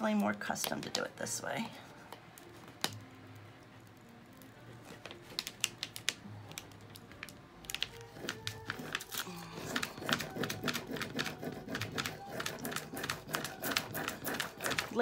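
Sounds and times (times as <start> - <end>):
plastic sheet crackling and clicking: 4.8 - 15.0.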